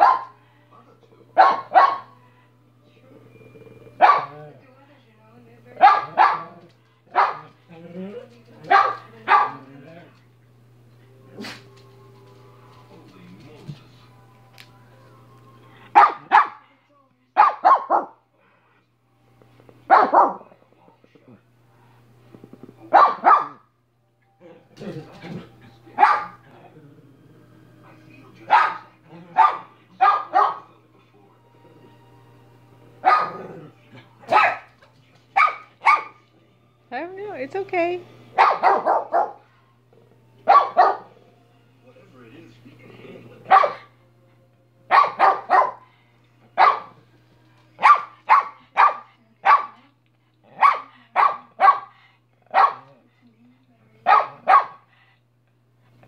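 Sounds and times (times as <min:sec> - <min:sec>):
small dog barking: 0:00.0 - 0:00.4, 0:01.4 - 0:02.1, 0:04.0 - 0:04.4, 0:05.8 - 0:07.5, 0:08.6 - 0:09.6, 0:16.0 - 0:16.6, 0:17.4 - 0:18.2, 0:19.9 - 0:20.5, 0:22.9 - 0:23.6, 0:26.0 - 0:26.4, 0:28.5 - 0:30.7, 0:33.0 - 0:33.5, 0:34.3 - 0:34.7, 0:35.4 - 0:36.2, 0:38.4 - 0:39.4, 0:40.5 - 0:41.1, 0:43.5 - 0:43.9, 0:44.9 - 0:45.8, 0:46.6 - 0:47.0, 0:47.8 - 0:49.8, 0:50.5 - 0:53.0, 0:54.0 - 0:54.8.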